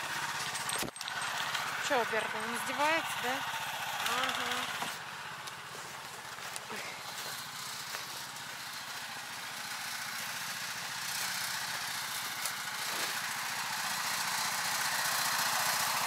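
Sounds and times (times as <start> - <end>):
small engine running: 0.0 - 16.0.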